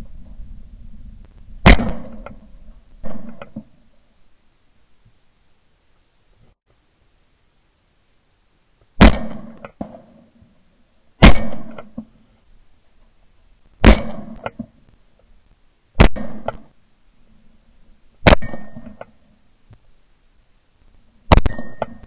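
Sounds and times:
shotgun shots with echo: 1.6 - 3.7, 9.0 - 9.7, 11.2 - 12.0, 13.8 - 14.5, 16.0 - 16.7, 18.2 - 19.0.

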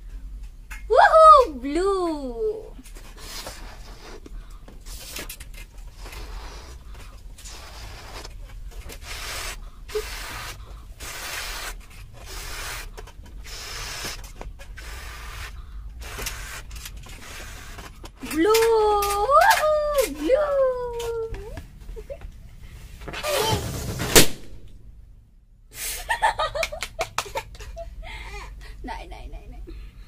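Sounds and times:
person blowing up balloon: 1.2 - 4.3, 5.9 - 21.4, 23.2 - 23.8, 25.7 - 26.1
person drawing breath: 6.0 - 8.3, 9.0 - 14.2.

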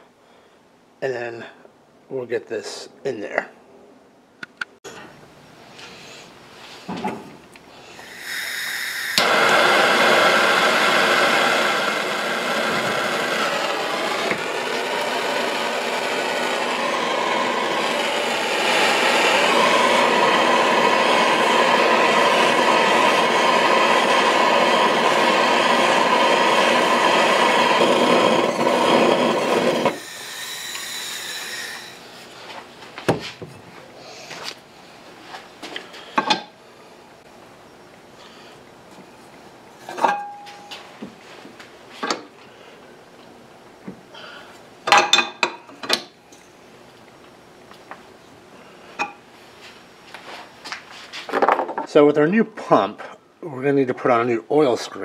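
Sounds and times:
propane torch hissing: 7.8 - 32.3
torch valve click: 8.2 - 9.6.

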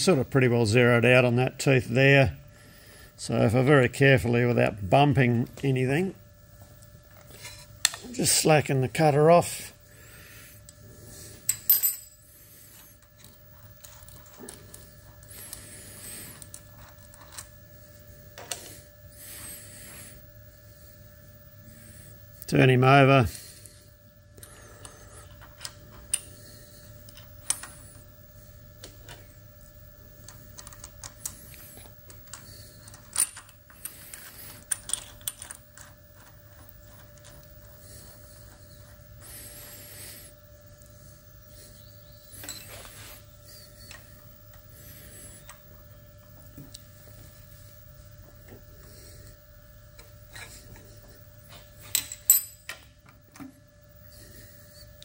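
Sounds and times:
faint electrical hum: 0.0 - 55.0.

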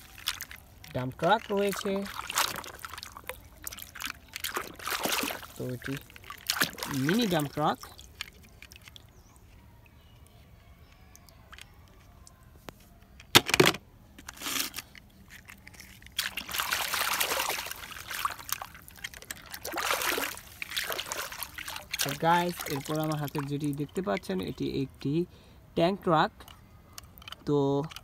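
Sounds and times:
water splashing and sloshing: 0.0 - 9.6, 14.4 - 25.0.

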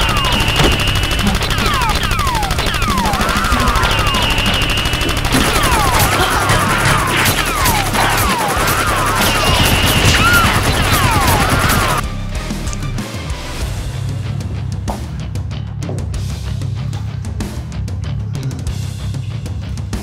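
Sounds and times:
single gunshots: 0.0 - 2.2
rapid gunfire: 0.0 - 12.0.

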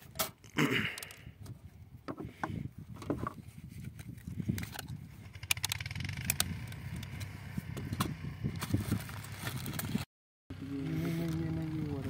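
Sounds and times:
plastic clicks: 4.0 - 8.1.

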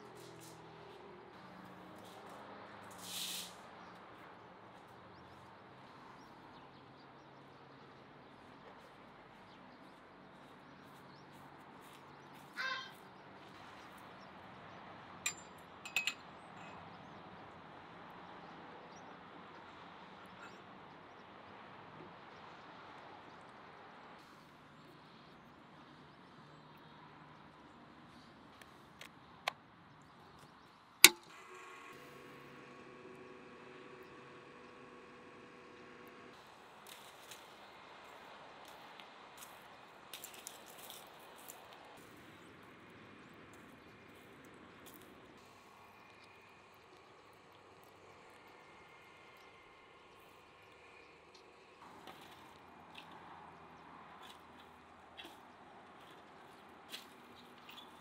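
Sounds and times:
metal rod clinking on metal stands: 15.3 - 16.8
motor humming: 31.1 - 36.4.

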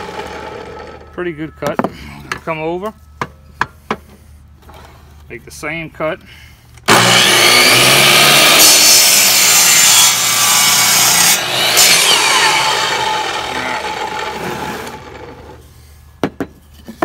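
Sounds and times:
miter saw cutting wood: 0.0 - 1.1, 6.9 - 15.6
saw motor spinning down: 6.9 - 15.6.

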